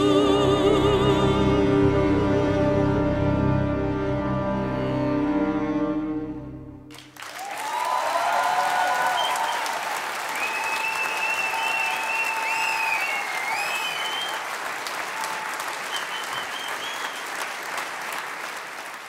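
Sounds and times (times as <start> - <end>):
audience applauding: 6.9 - 19.0.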